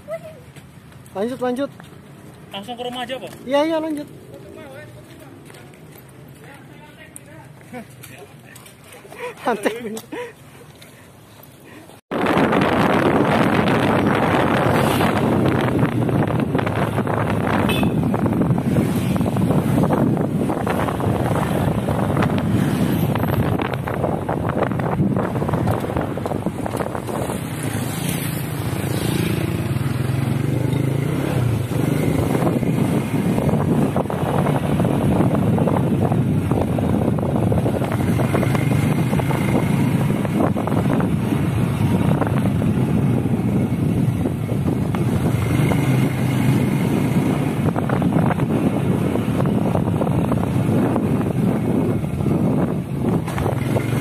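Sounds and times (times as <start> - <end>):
wind buffeting microphone: 12.1 - 54.0.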